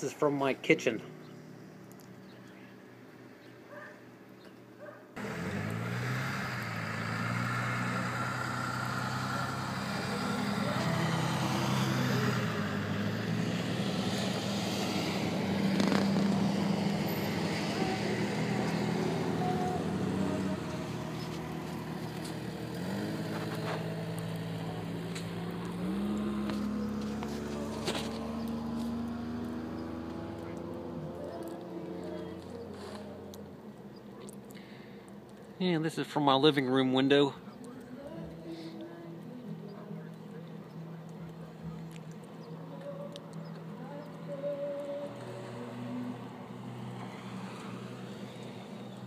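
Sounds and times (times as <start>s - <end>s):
engine running: 5.2s - 35.6s.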